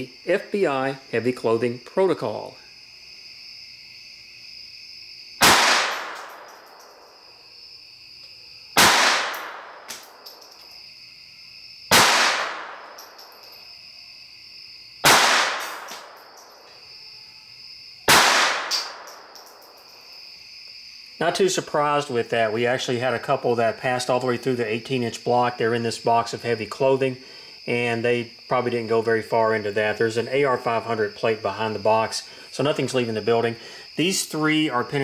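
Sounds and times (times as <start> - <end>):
pistol gunshots echoing in room: 5.4 - 7.1, 8.8 - 10.6, 11.9 - 13.4, 15.0 - 16.5, 18.1 - 19.7.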